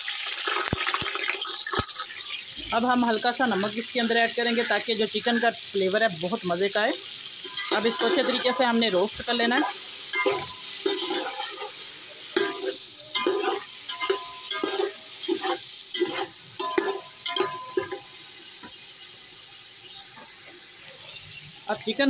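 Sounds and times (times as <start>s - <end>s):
chicken sizzling in hot fat: 0.0s - 22.0s
metal skimmer scraping a pot: 7.4s - 8.6s, 9.6s - 11.7s.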